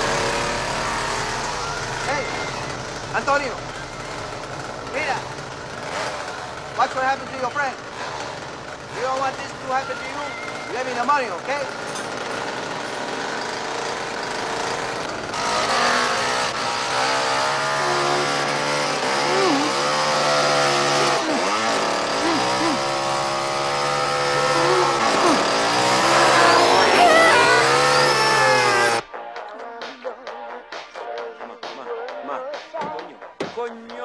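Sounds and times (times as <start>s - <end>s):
chainsaw revving: 0.0s - 29.0s
man screaming: 9.6s - 11.1s, 17.6s - 29.0s.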